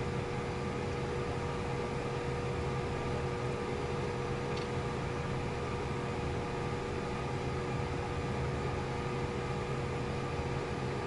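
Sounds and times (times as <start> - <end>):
jet engines idling hum and whine: 0.0 - 11.0.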